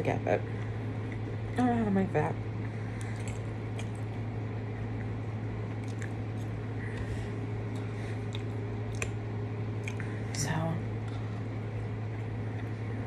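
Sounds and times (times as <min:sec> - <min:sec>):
steady low hum: 0:00.0 - 0:13.0
person chewing food: 0:02.6 - 0:10.3, 0:11.7 - 0:13.0.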